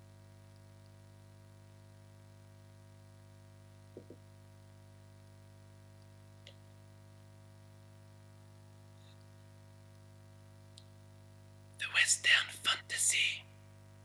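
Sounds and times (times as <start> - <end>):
soft knocks: 4.0 - 4.2.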